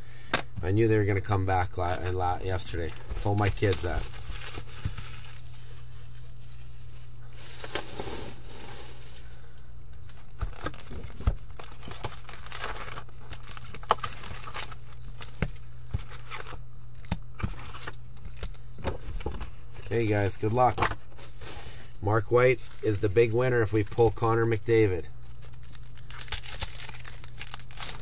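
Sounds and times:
plastic wrap crinkling and tearing: 0:02.6 - 0:09.2, 0:10.0 - 0:15.4, 0:16.0 - 0:18.5, 0:22.6 - 0:24.4, 0:25.2 - 0:28.0.

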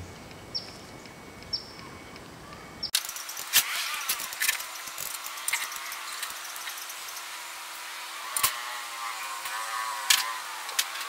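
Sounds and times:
high falling bird chirps: 0:00.0 - 0:07.8
sharp clicks and knocks: 0:02.9 - 0:07.3.

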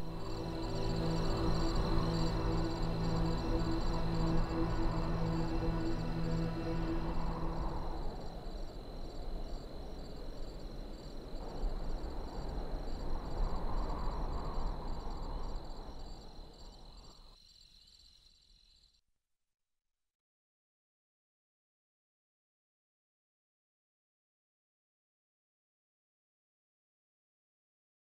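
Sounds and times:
held low music tone: 0:00.0 - 0:09.8
crickets chirping: 0:00.0 - 0:19.0.

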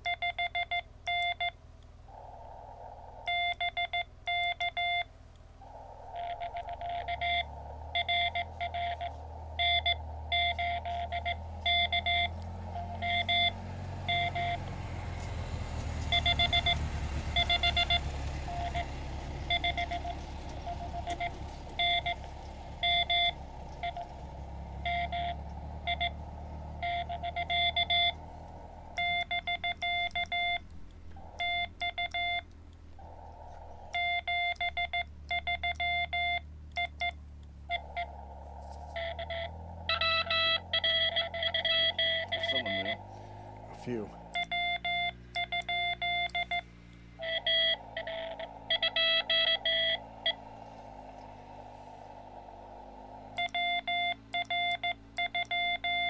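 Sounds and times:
morse code beeping: 0:03.3 - 0:15.2, 0:16.1 - 0:28.3, 0:28.9 - 0:32.5, 0:33.8 - 0:38.2, 0:38.9 - 0:50.4, 0:53.4 - 0:56.0.

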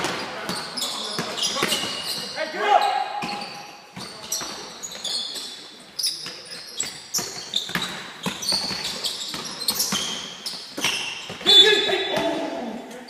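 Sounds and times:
sneakers squeaking on floor: 0:00.0 - 0:13.0.

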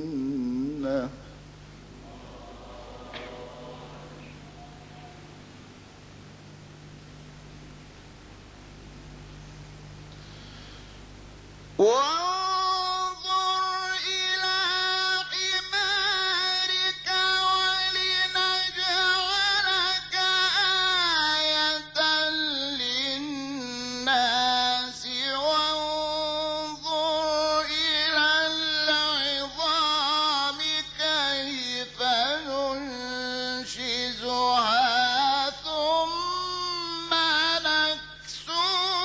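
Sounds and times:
man chanting melodic recitation: 0:11.8 - 0:39.0.

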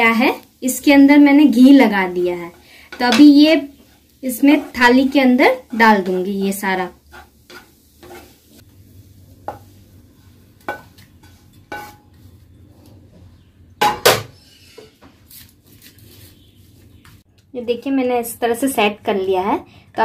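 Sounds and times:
spatula scraping a pan: 0:00.6 - 0:08.7, 0:09.3 - 0:12.4, 0:14.4 - 0:15.0.

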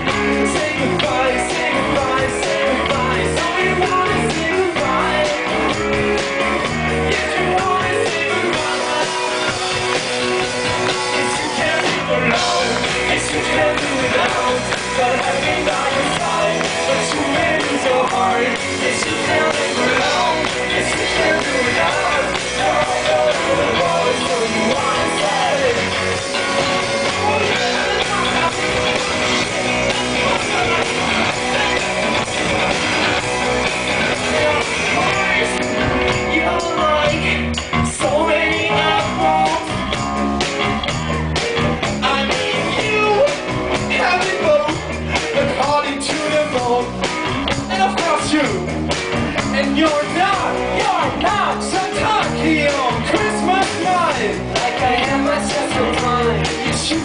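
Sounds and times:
man singing: 0:00.0 - 0:40.0, 0:41.8 - 0:57.0
live rock band playing: 0:00.0 - 0:57.0.

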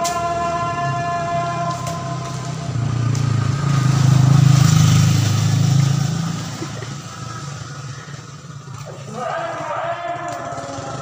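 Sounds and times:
motorcycle engine passing by: 0:00.5 - 0:11.0.

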